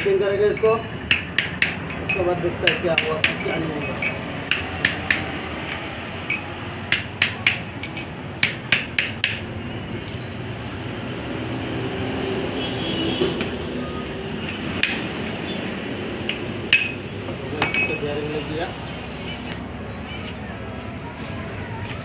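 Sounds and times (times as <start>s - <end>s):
hammer tapping on metal: 0.0s - 9.5s, 14.5s - 15.1s, 16.2s - 17.0s.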